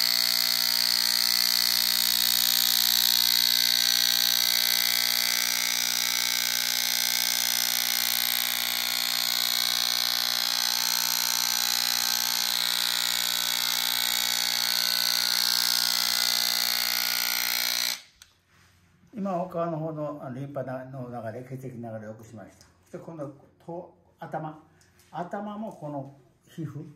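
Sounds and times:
electric massager buzzing: 0:00.0 - 0:18.3.

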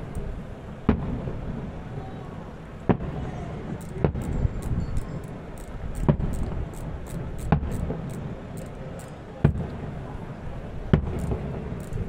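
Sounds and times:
steady low rumble: 0:00.0 - 0:12.0
firework shells bursting: 0:02.9 - 0:10.0, 0:10.9 - 0:12.0.

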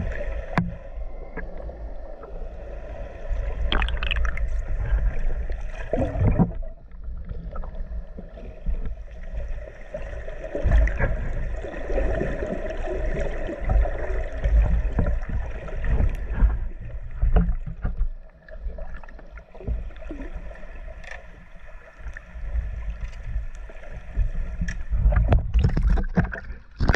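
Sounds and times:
underwater knocks: 0:00.0 - 0:01.6, 0:03.7 - 0:05.2, 0:05.9 - 0:09.0, 0:13.1 - 0:20.3, 0:24.2 - 0:26.9
low underwater churning rumble: 0:00.0 - 0:26.9.

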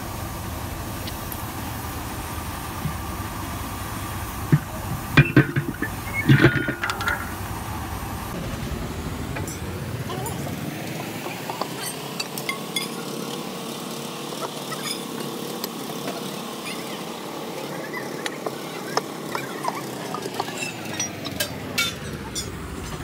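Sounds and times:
engine-like drone: 0:00.0 - 0:23.0
metallic clinks of tools: 0:11.7 - 0:13.1.

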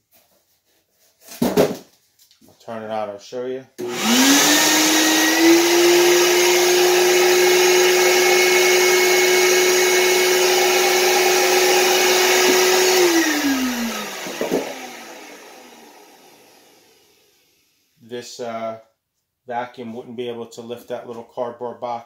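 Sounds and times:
vacuum motor whining: 0:03.8 - 0:17.6.

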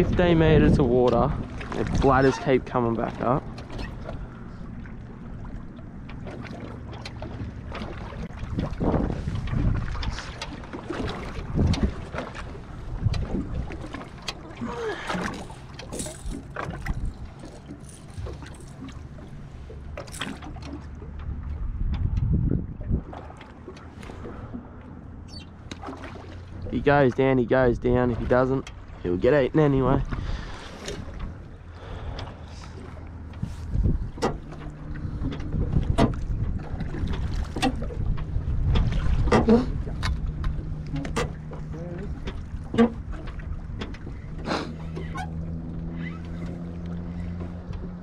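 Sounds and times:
wind buffeting microphone: 0:00.0 - 0:02.8, 0:08.2 - 0:10.4, 0:11.0 - 0:13.9, 0:14.7 - 0:18.7, 0:21.3 - 0:23.2, 0:33.0 - 0:44.4
water lapping against boat hull: 0:00.0 - 0:48.0
steady low rumble: 0:21.0 - 0:23.2, 0:29.2 - 0:45.9.

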